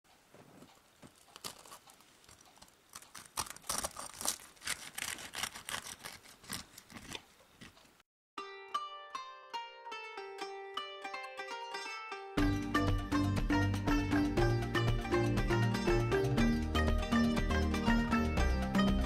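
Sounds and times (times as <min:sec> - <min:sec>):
knife crunching fried crust: 0:00.6 - 0:07.9.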